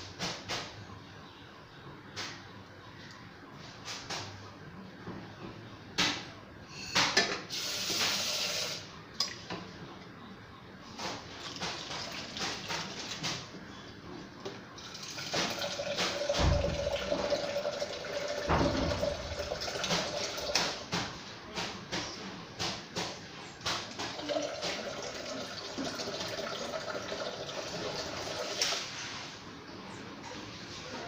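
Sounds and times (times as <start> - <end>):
water running from tap: 14.9 - 20.6, 24.1 - 28.6.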